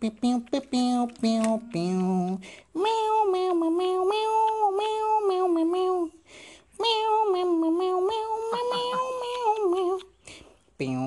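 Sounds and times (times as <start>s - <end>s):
person humming a tune: 0.0s - 6.2s, 6.8s - 10.2s, 10.8s - 11.0s.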